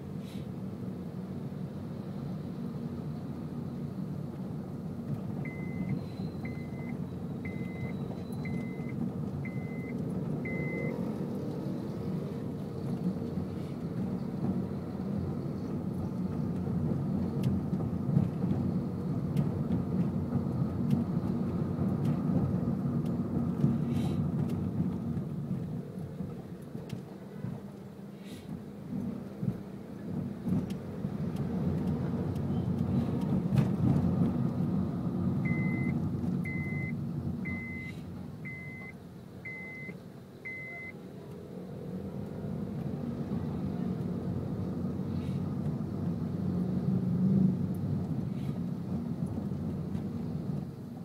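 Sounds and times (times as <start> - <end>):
car engine and tyres rumbling: 0.0 - 51.0
short high beeps: 36.5 - 38.9, 39.5 - 41.0.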